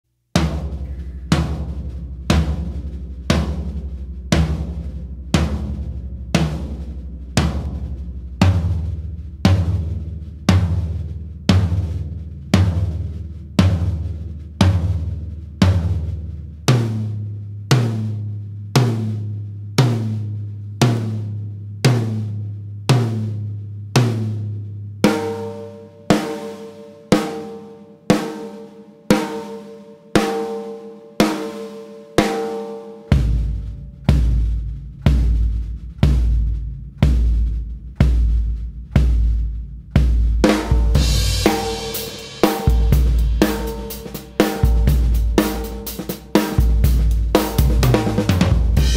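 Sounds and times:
drums struck and ringing: 0:00.4 - 0:12.0, 0:25.0 - 0:39.4, 0:40.0 - 0:48.9
high ringing drum: 0:25.0 - 0:36.4, 0:40.0 - 0:48.9.

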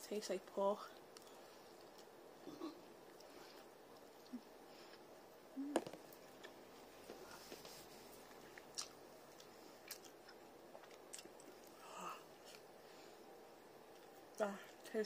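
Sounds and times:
person chewing quietly: 0:00.9 - 0:14.8.

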